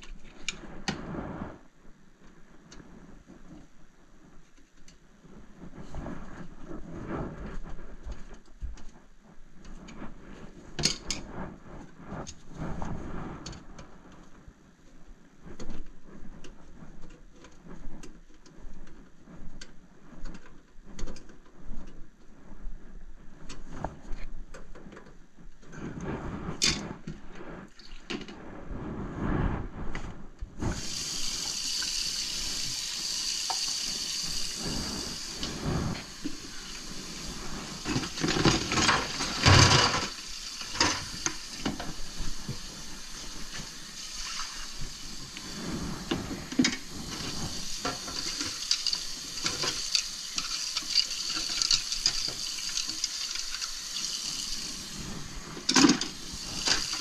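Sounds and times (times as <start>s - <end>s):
faucet running into sink: 30.8s - 35.4s, 36.2s - 45.5s, 46.7s - 55.0s, 55.7s - 57.0s.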